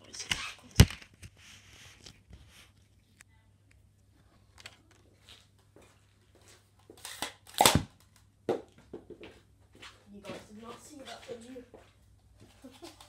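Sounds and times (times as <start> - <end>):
toy blaster firing foam dart: 7.5 - 7.9.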